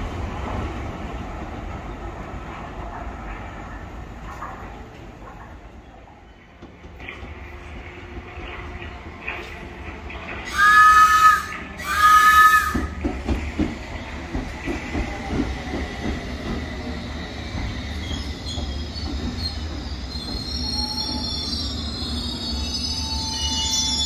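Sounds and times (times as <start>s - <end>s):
steady train rumble: 0.0s - 24.0s
two-tone train horn: 10.5s - 13.0s
wheel and brake squeal: 17.2s - 24.0s.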